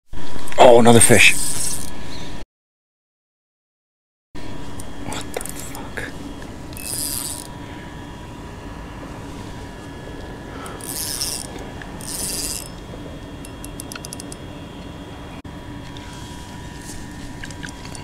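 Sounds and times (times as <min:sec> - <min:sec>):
fishing line rasping on reel: 0:01.2 - 0:01.9, 0:05.2 - 0:06.0, 0:06.7 - 0:07.6, 0:10.7 - 0:12.8, 0:13.4 - 0:14.4
reel clicking: 0:01.2 - 0:01.9, 0:04.8 - 0:05.8, 0:06.7 - 0:07.5, 0:10.7 - 0:14.4.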